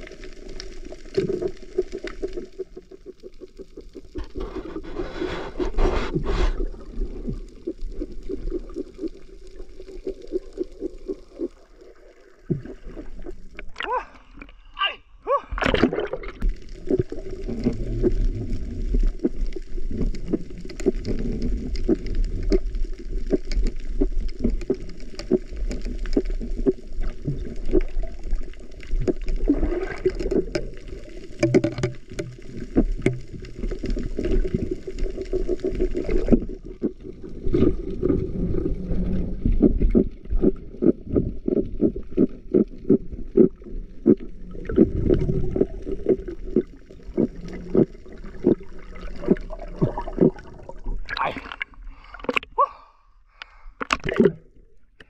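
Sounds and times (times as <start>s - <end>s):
underwater gurgling and bubbling: 0.0s - 14.6s, 15.5s - 52.5s, 53.8s - 55.0s
underwater knocks and taps: 29.0s - 34.3s.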